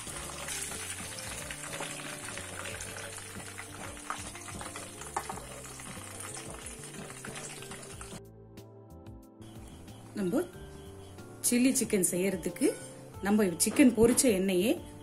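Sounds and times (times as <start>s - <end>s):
hot oil sizzling: 0.0s - 8.2s.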